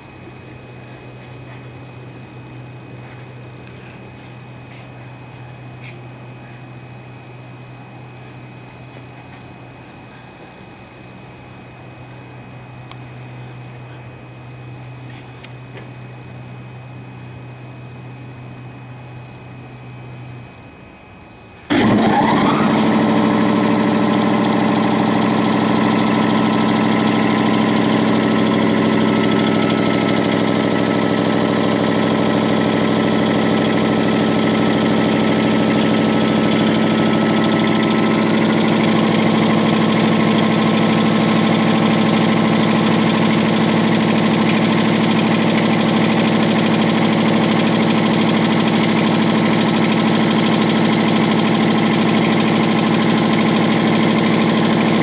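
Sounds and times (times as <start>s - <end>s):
air compressor running: 0.0s - 55.0s.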